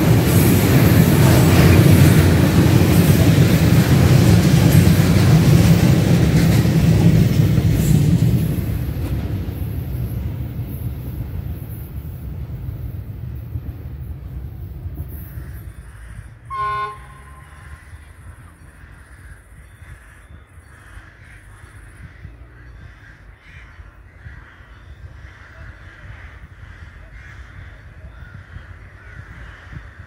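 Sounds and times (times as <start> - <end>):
passing train rumble: 0.0 - 30.0
crows cawing: 18.8 - 30.0.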